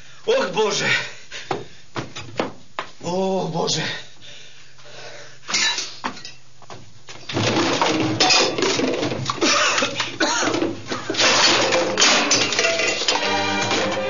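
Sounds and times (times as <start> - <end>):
crockery clattering to the floor: 5.5 - 6.4, 7.3 - 13.4.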